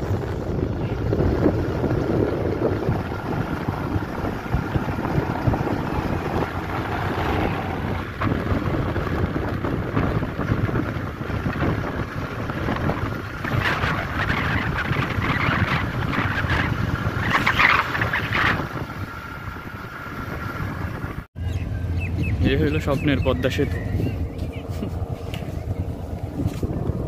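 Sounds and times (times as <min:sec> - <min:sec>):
vehicle rumble on road: 0:00.0 - 0:27.0
wind buffeting microphone: 0:00.0 - 0:27.0.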